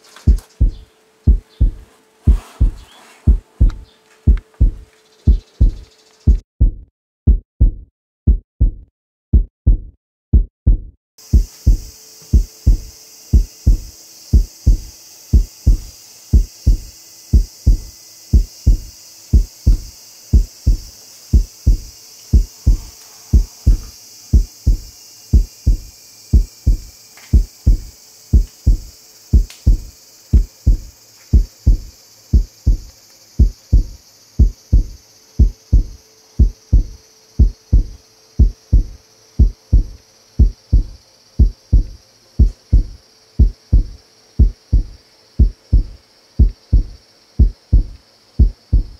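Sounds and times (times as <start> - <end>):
heartbeat thumps: 0.3 - 48.9
faint steady drone: 11.2 - 48.9.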